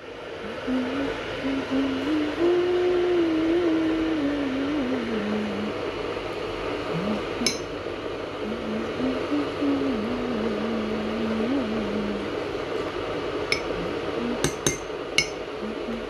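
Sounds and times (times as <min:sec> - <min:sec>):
background hiss and rumble: 0:00.0 - 0:16.0
low wavering tone: 0:00.4 - 0:05.8, 0:06.9 - 0:07.8, 0:13.5 - 0:16.0
teaspoon clinking on ceramic mug: 0:07.5 - 0:07.7, 0:13.5 - 0:13.7.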